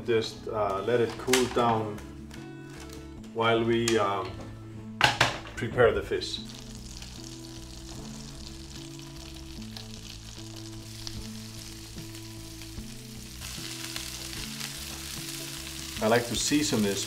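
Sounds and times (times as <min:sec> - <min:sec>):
background music with low notes: 0:00.0 - 0:17.0
food sizzling in a frying pan: 0:06.4 - 0:17.0.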